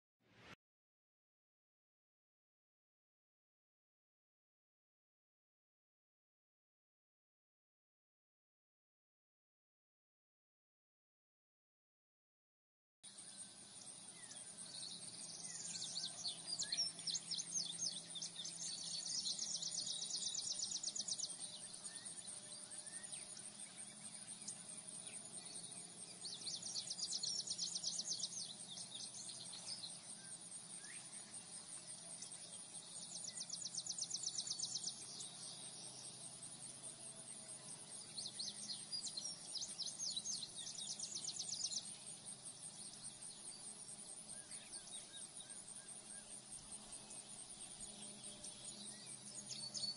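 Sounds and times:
bird chirps: 13.1 - 49.9.

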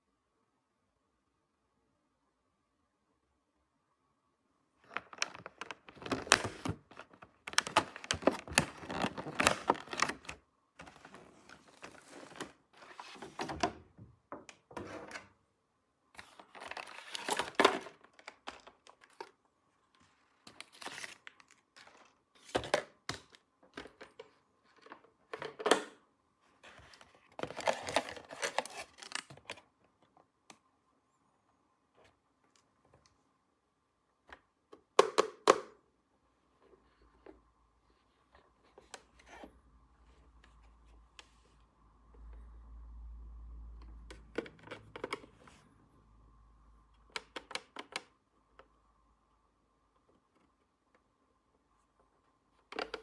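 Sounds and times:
plastic packaging crinkling: 4.8 - 12.5, 27.4 - 29.5.

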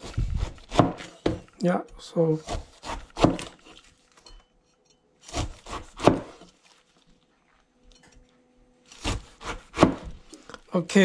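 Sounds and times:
knife crunching through pineapple: 2.4 - 4.2, 5.2 - 7.0, 8.8 - 10.6.

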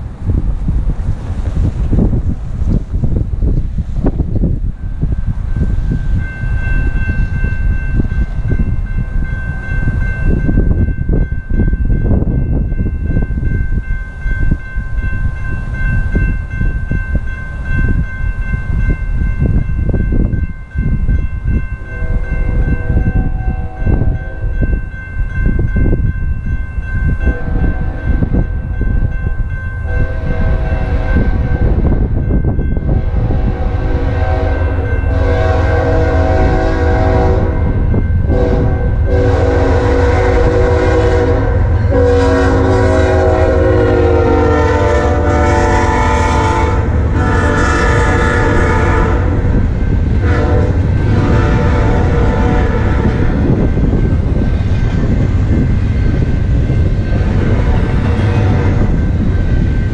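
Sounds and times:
wind noise on microphone: 0.0 - 59.9
locomotive horn blasts: 21.8 - 24.5, 27.3 - 28.3, 29.9 - 31.8, 33.0 - 37.7, 38.3 - 49.5, 50.2 - 53.4, 57.3 - 58.8.

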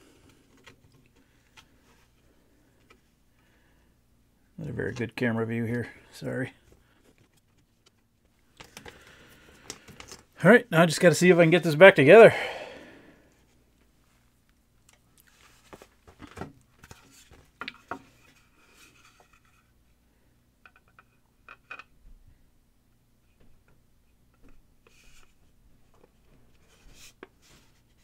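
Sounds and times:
plastic parts clicking and rubbing: 0.2 - 2.2, 6.6 - 10.4.

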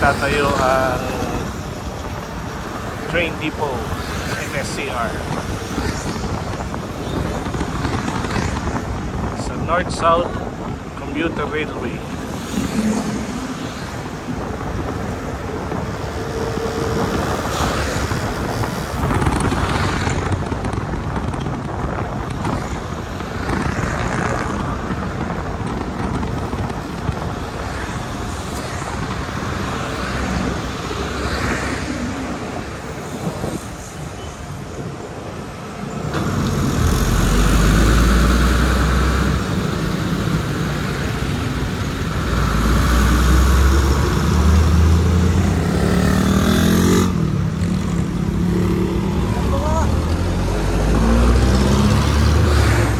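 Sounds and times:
wind and road noise: 0.0 - 52.9
engine revving up: 42.2 - 47.2, 48.4 - 52.9.

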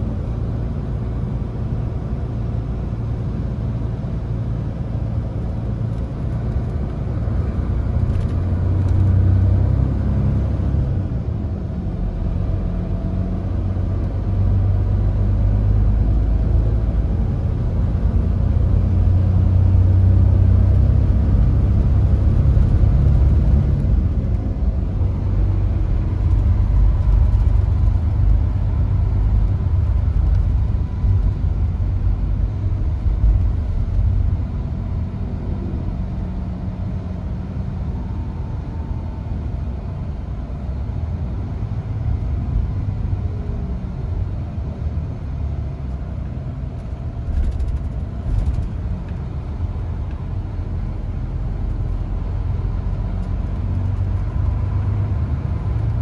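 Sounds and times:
bus cabin engine and road noise: 0.0 - 56.0.

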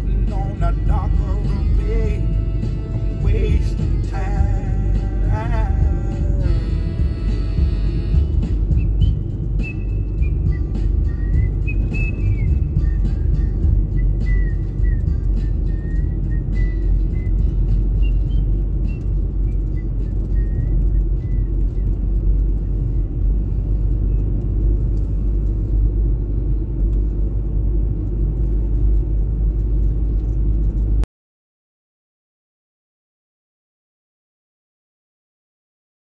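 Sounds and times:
car engine and tyres rumbling: 0.0 - 31.1.

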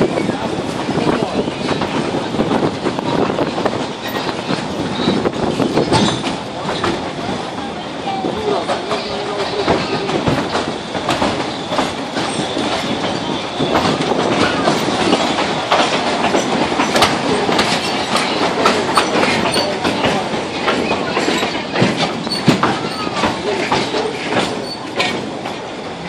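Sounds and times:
train wheels clattering on rails: 0.0 - 26.0
high wheel squeal: 22.2 - 23.4, 24.5 - 25.1.

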